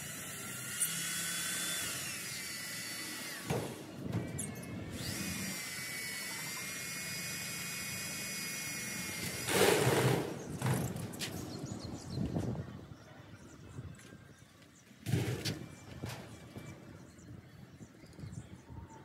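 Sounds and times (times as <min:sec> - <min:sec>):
cordless drill motor whine: 0:00.0 - 0:10.3.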